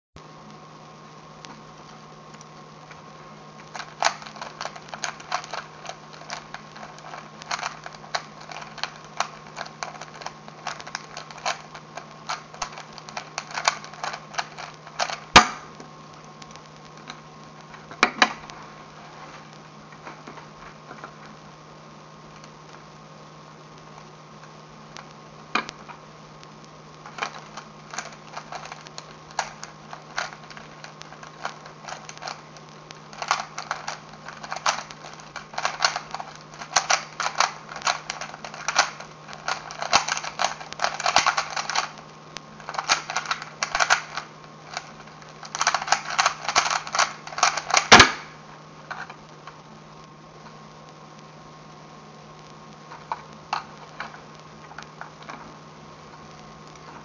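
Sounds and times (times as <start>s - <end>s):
puzzle cube clicking turns: 3.6s - 15.7s, 27.0s - 42.0s, 42.6s - 49.6s.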